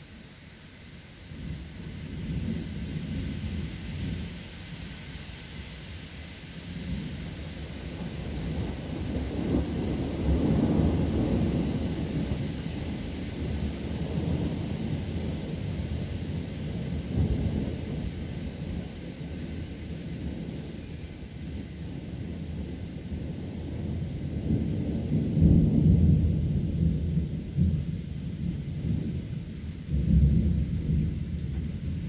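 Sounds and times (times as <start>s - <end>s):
rain hiss: 0.0s - 32.0s
thunder rumbling: 6.8s - 32.0s.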